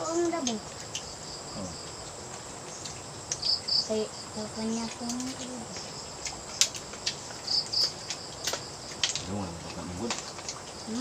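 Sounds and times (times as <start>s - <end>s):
crickets chirping: 0.0s - 11.0s
faint person's voice: 1.6s - 1.8s.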